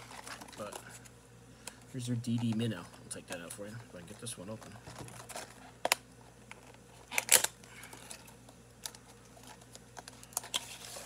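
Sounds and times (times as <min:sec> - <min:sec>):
loud packaging rustle: 0:00.0 - 0:01.1, 0:04.2 - 0:11.0
packaging clicks and crinkling: 0:00.0 - 0:11.0.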